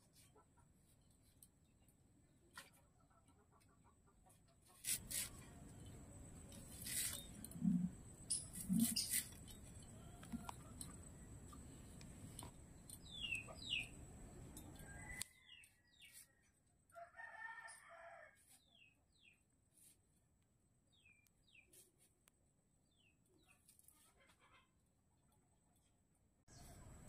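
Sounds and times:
small bird chirping: 4.7s - 16.4s
rooster crowing: 14.8s - 15.4s, 16.9s - 18.4s.

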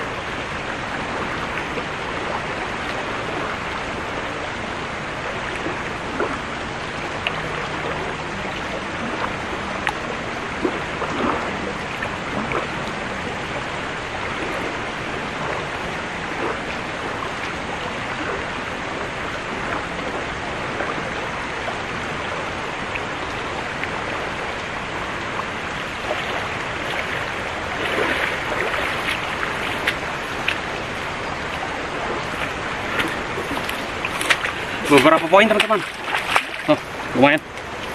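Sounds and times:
river rushing: 0.0s - 37.9s
small splashes and knocks: 25.8s - 37.9s.

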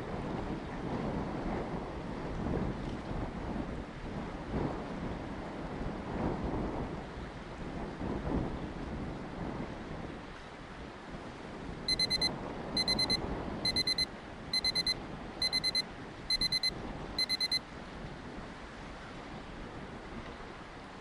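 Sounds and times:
electronic timer alarm beeping: 11.9s - 17.6s.

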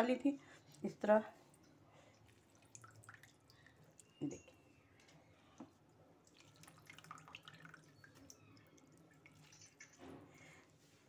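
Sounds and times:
water dripping and splashing: 1.5s - 5.1s, 6.1s - 10.4s.

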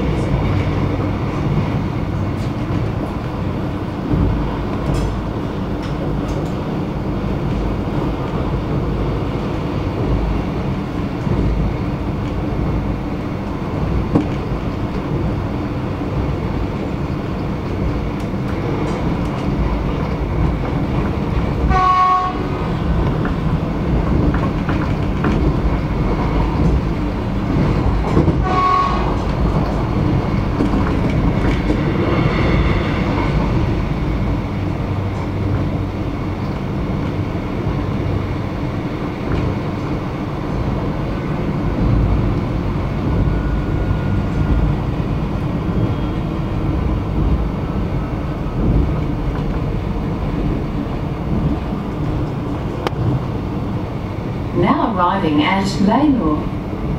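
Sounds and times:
train wheels rumbling on track: 0.0s - 56.9s
train horn: 21.7s - 22.7s, 28.4s - 29.2s.

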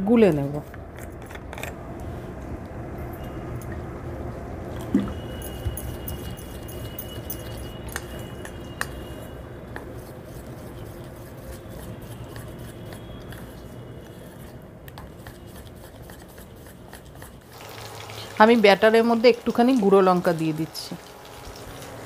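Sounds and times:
spoon stirring wet batter: 5.4s - 17.5s.

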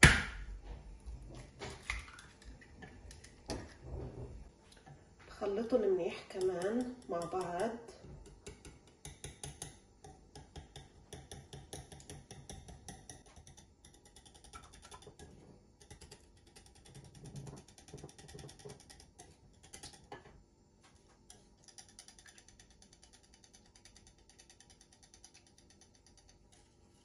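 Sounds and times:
wire whisk clicking against bowl: 6.3s - 20.1s, 21.3s - 26.6s.

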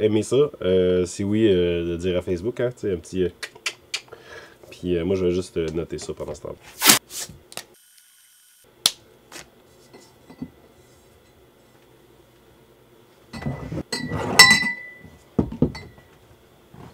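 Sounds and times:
glass bottles clinking: 13.9s - 16.1s.

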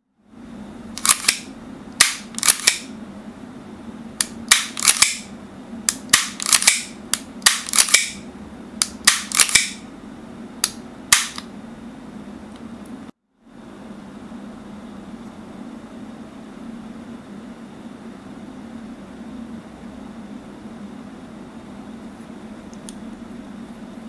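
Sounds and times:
airsoft pistol shots: 2.0s - 2.8s, 4.5s - 5.2s, 6.1s - 8.2s, 9.0s - 9.8s, 11.1s - 11.4s.

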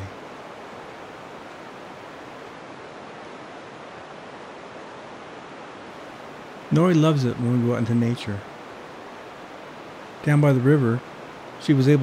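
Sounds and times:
river rushing over rocks: 0.0s - 12.0s.

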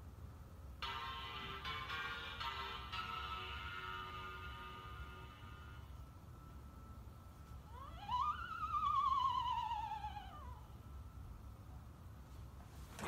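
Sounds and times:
electronic toy wail: 7.6s - 10.9s.

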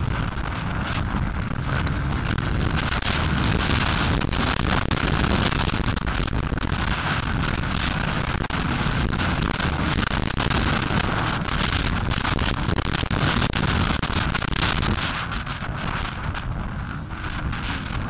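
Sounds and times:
crackling clicks: 0.0s - 18.0s
motocross engine running hard: 0.0s - 18.0s
wind buffeting microphone: 0.0s - 18.0s.

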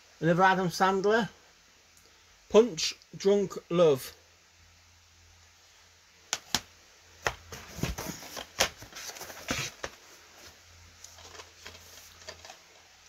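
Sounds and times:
plastic cases clacking: 6.4s - 10.0s, 11.1s - 12.7s
plastic cases rustling: 6.5s - 13.0s.

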